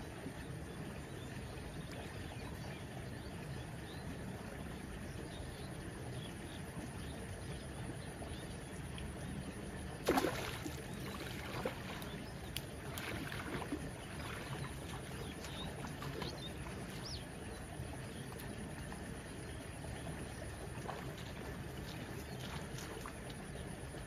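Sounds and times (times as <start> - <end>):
running water: 0.0 - 24.0
fish splashing in water: 10.0 - 17.2.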